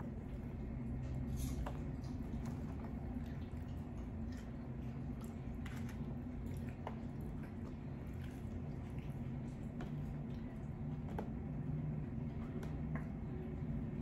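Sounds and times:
chewing crunchy taco: 0.0s - 11.2s.

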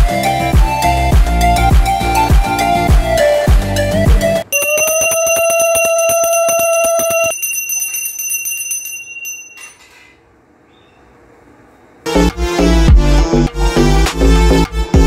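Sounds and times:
hand bell ringing rapidly: 4.5s - 9.7s.

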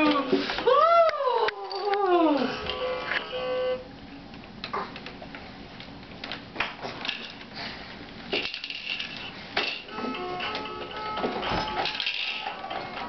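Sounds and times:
electronic toy tone: 2.7s - 3.8s.

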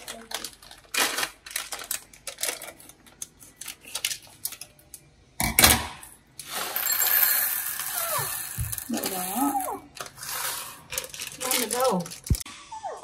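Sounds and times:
plastic packet crinkling: 0.0s - 4.8s, 8.0s - 12.4s
dried beans pouring into bowl: 6.4s - 12.3s.

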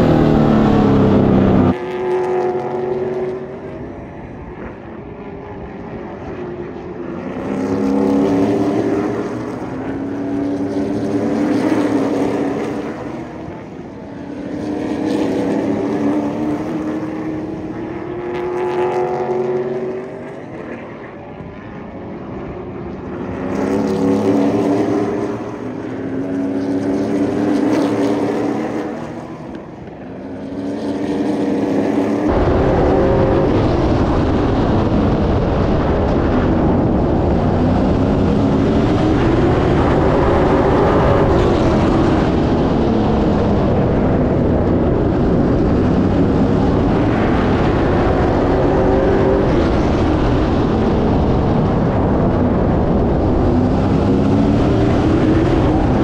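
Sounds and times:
onboard engine and wind noise: 0.0s - 56.0s
race car engines passing by: 0.0s - 56.0s.

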